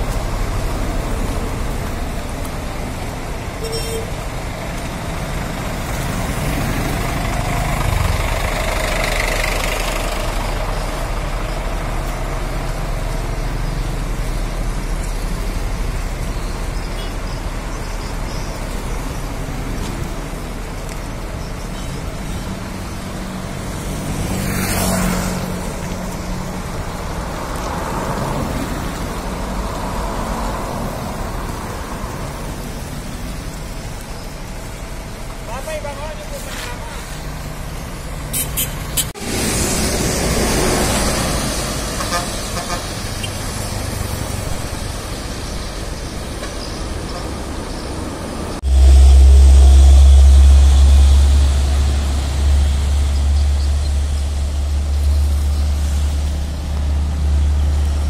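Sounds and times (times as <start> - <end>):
cars and motorcycles passing: 0.0 - 58.0
low traffic rumble: 0.0 - 58.0
vehicle whooshing past: 5.8 - 10.7, 23.2 - 32.5, 38.8 - 45.3.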